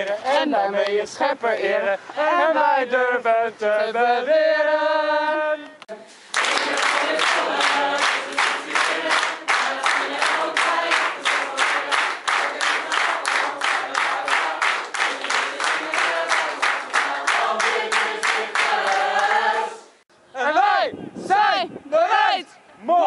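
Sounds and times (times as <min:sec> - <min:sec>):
group of voices singing: 0:00.0 - 0:20.0
crowd clapping in rhythm: 0:06.3 - 0:19.7.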